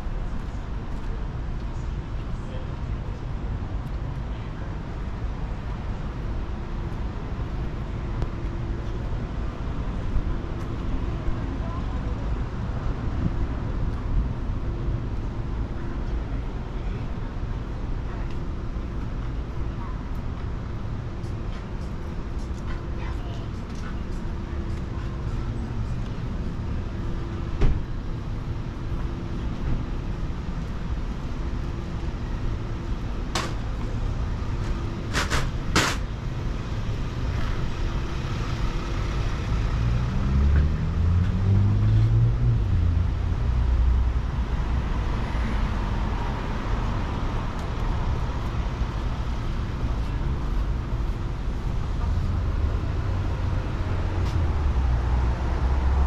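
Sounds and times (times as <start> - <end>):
street traffic rumbling: 0.0 - 56.0
vehicle engine speeding up: 39.6 - 43.0.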